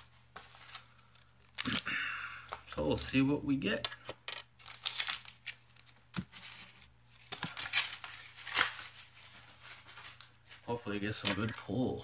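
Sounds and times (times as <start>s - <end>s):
plastic packaging crinkling: 4.6s - 6.0s.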